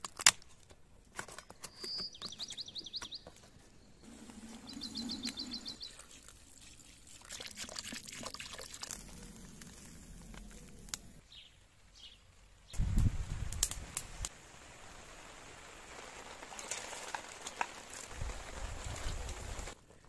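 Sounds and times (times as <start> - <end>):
fire crackling: 3.3 - 20.0
liquid sloshing in a kettle: 5.9 - 9.0.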